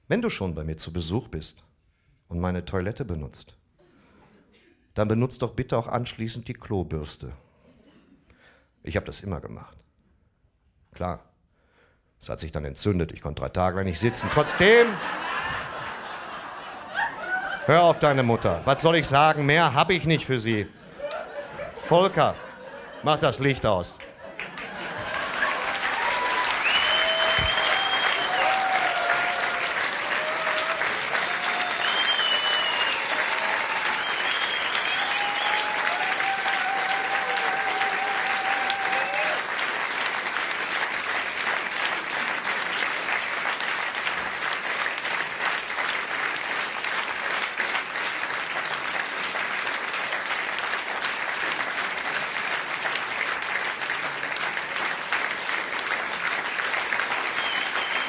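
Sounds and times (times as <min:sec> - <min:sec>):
people cheering: 0:14.0 - 0:20.0, 0:20.8 - 0:23.2, 0:24.3 - 0:40.8, 0:54.0 - 0:58.0
audience applauding: 0:14.0 - 0:58.0.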